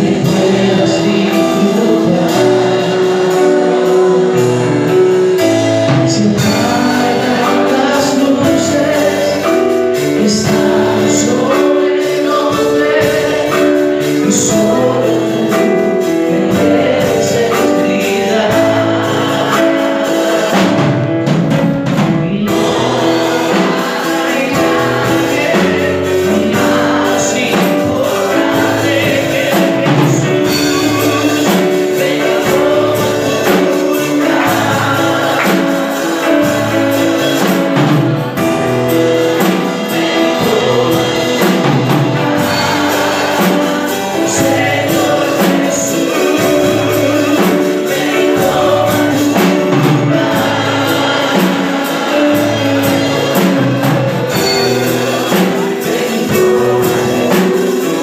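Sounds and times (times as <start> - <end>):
drum kit steady beat: 0.0 - 58.0
keyboard: 0.0 - 58.0
man singing into a microphone: 0.0 - 58.0.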